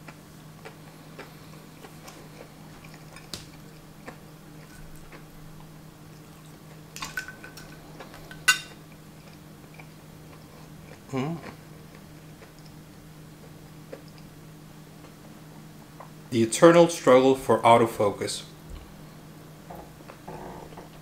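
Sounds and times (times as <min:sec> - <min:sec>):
soft chewing: 0:00.0 - 0:07.0, 0:07.6 - 0:14.4, 0:15.0 - 0:15.3
fork clinking on a plate: 0:08.3 - 0:08.8.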